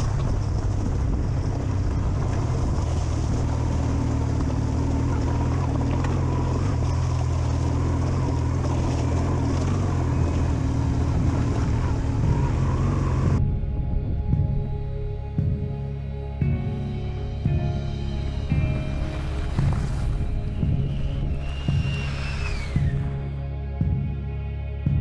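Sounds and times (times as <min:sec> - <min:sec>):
wind rush over microphone: 0:00.0 - 0:04.1
motorcycle engine cruising: 0:00.0 - 0:24.2.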